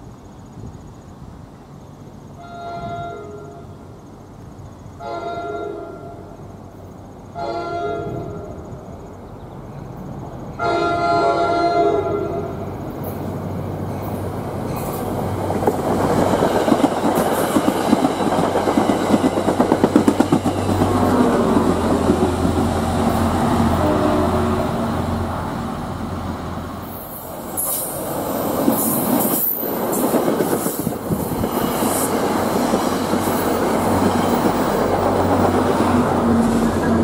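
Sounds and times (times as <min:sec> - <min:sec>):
train passing rumble: 0:00.0 - 0:37.0
train horn blasts: 0:02.4 - 0:03.7, 0:05.0 - 0:06.3, 0:07.3 - 0:08.7, 0:10.6 - 0:12.6, 0:23.7 - 0:24.8
wheels clattering over rail joints: 0:13.0 - 0:23.5.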